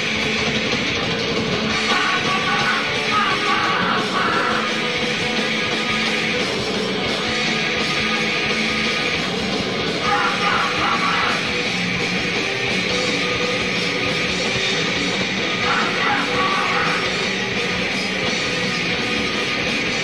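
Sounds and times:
bass: 0:00.0 - 0:20.0
distorted electric guitars: 0:00.0 - 0:20.0
drums: 0:00.0 - 0:20.0
shouted vocals: 0:01.7 - 0:04.9, 0:10.0 - 0:11.6, 0:15.6 - 0:17.4.

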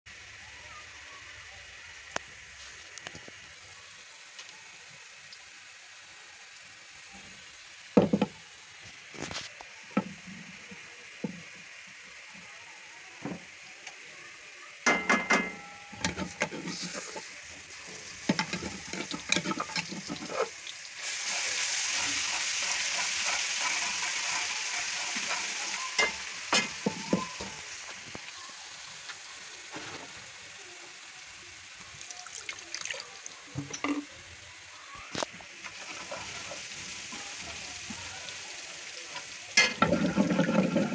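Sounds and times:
loud even sizzle: 0:00.1 - 0:40.9
onions frying in hot oil: 0:00.1 - 0:40.9
ladle scraping metal pan: 0:14.9 - 0:17.3, 0:18.3 - 0:20.6.

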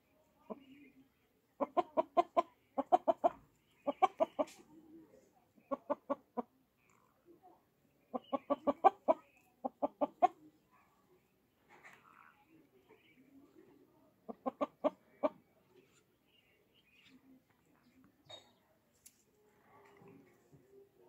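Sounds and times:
chicken clucking: 0:01.6 - 0:05.0, 0:05.6 - 0:07.0, 0:08.0 - 0:10.6, 0:12.9 - 0:16.0.

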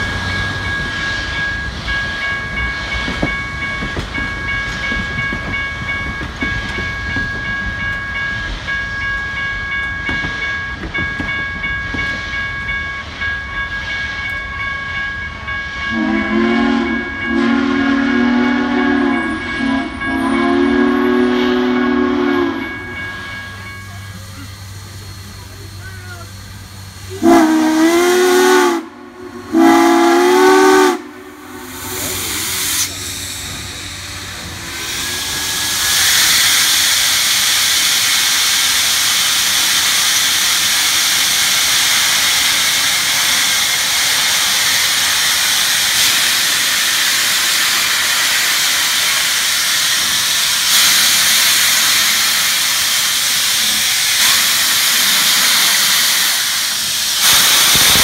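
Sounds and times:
steam hissing: 0:00.0 - 0:58.0
steam locomotive whistle: 0:15.6 - 0:23.6, 0:27.1 - 0:37.2.

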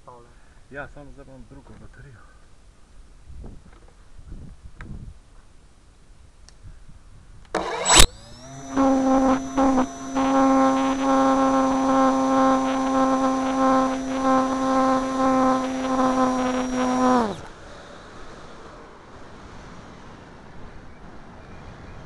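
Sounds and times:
model plane motor and propeller: 0:07.5 - 0:17.6
thin high whine: 0:07.6 - 0:18.7.

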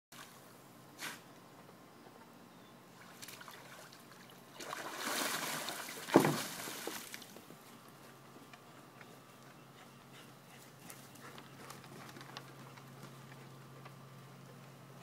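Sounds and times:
dog splashing through water: 0:04.6 - 0:07.2.

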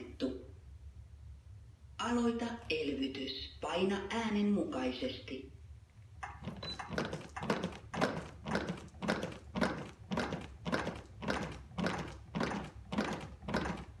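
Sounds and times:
chest compressions on plastic manikin: 0:06.2 - 0:14.0.

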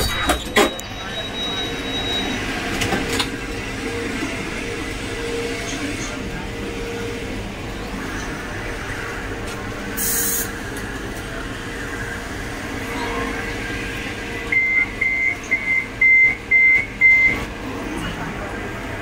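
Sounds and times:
standing tram hum: 0:00.0 - 0:19.0
air hiss: 0:10.0 - 0:10.5.

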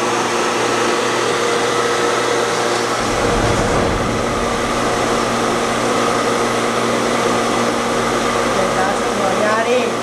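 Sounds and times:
pump motor humming: 0:00.0 - 0:10.0
low rumble: 0:03.0 - 0:08.0.

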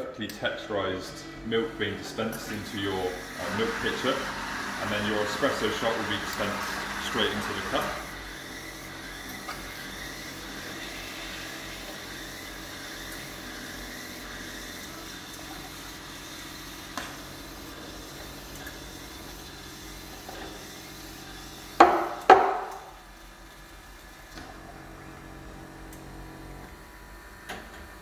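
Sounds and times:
espresso machine dispensing: 0:01.8 - 0:23.0.

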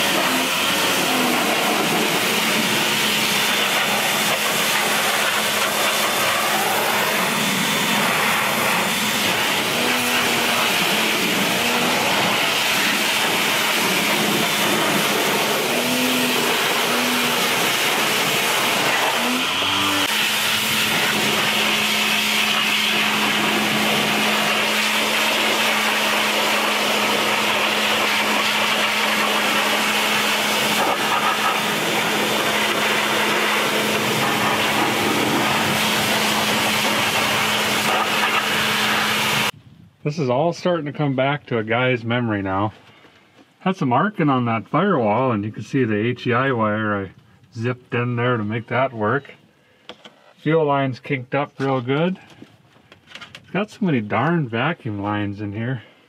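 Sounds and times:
pressure washer water jet hissing: 0:00.0 - 0:39.6.

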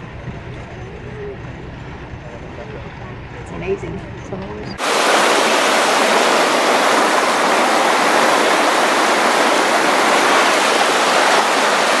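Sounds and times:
creek rushing over stones: 0:04.8 - 0:12.0.

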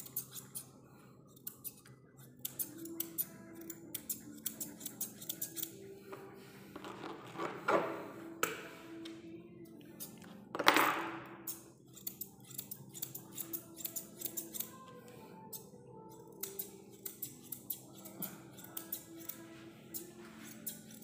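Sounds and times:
scissors snipping fur: 0:00.0 - 0:05.9, 0:11.4 - 0:14.9, 0:15.5 - 0:21.0.

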